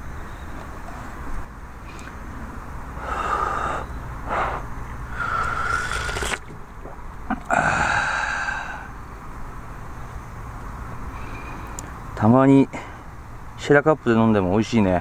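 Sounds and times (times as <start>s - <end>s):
low outdoor rumble: 0.0s - 15.0s
person slurping coffee: 5.2s - 6.5s
faint metallic tick: 11.6s - 11.9s.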